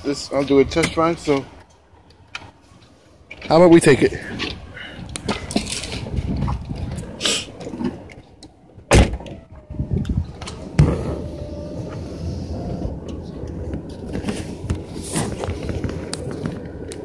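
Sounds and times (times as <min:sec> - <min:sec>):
car door slam: 0:08.9 - 0:09.3.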